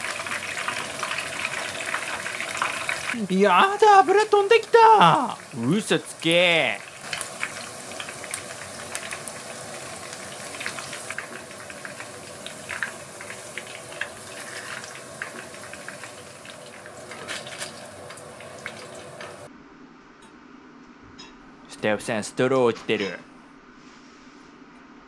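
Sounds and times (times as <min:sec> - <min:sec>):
deep-frying sizzle with pops: 0:00.0 - 0:19.5.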